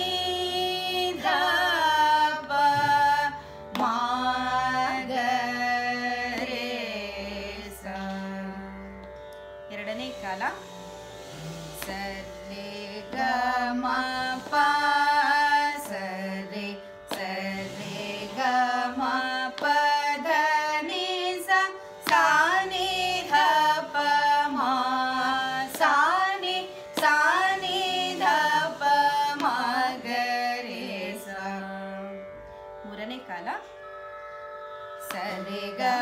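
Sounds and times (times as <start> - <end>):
women singing scale exercise: 0.0 - 8.6, 11.7 - 31.9, 34.6 - 36.0
continuous drone: 9.7 - 36.0.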